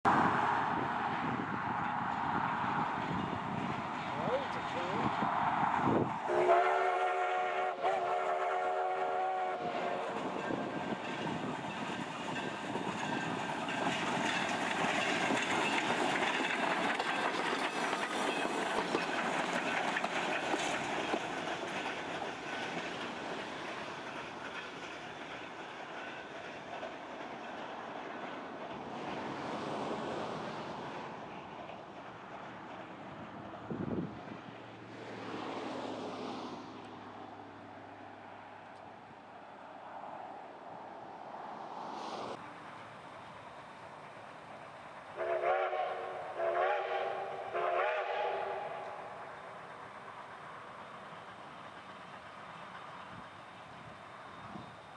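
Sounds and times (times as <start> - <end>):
train wheels rumbling on rails: 0.1 - 54.9
steam whistle blast: 6.3 - 10.0, 45.2 - 48.8.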